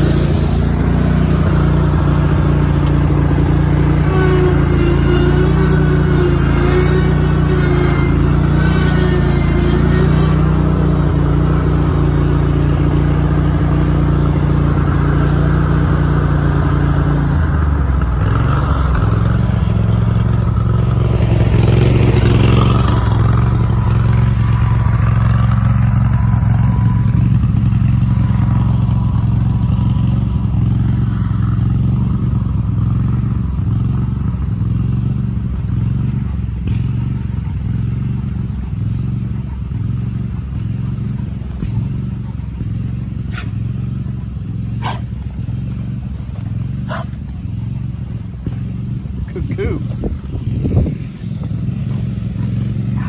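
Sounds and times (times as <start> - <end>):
small vehicle engine running: 0.0 - 53.0
knocks and rattles over bumps: 17.8 - 53.0.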